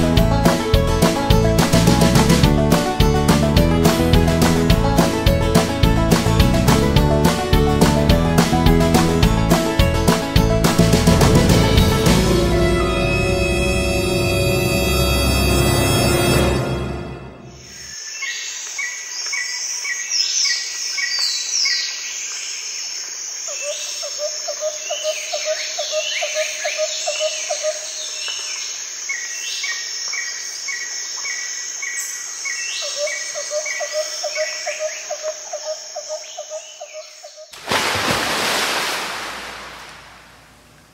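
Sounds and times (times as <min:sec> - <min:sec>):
burst of rushing noise: 0:37.6 - 0:40.9.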